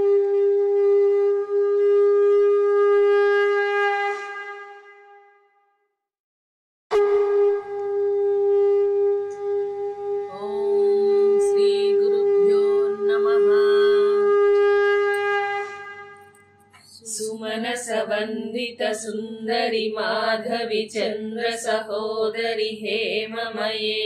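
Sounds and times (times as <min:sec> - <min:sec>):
conch shell blown: 0:00.0 - 0:05.7, 0:06.9 - 0:16.8
wavering pitched sound: 0:06.9 - 0:16.7.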